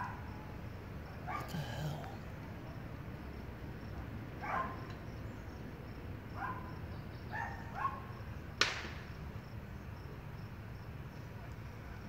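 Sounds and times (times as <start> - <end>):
dog barking: 1.2 - 2.1, 4.4 - 4.9, 6.4 - 6.7, 7.3 - 8.1
sharp pop: 8.6 - 9.0.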